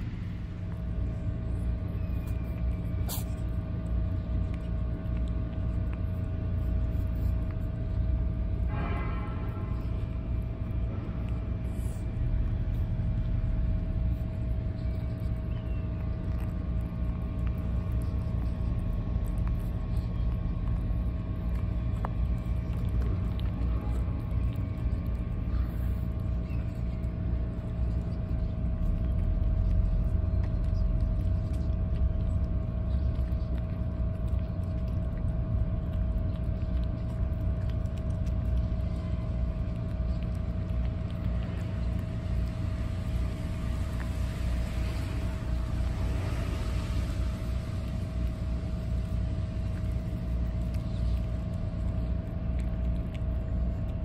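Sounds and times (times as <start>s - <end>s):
cats chewing and lapping: 0.0s - 54.0s
constant hum: 0.0s - 54.0s
low rumble: 0.0s - 54.0s.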